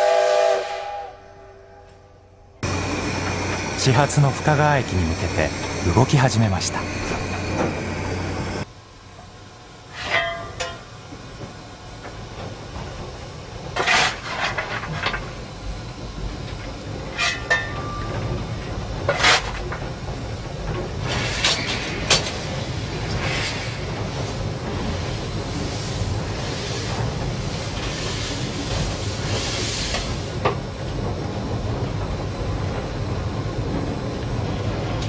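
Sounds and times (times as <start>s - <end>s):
locomotive rumble: 2.6s - 9.8s
coal shovel scraping and clanging: 13.8s - 14.7s.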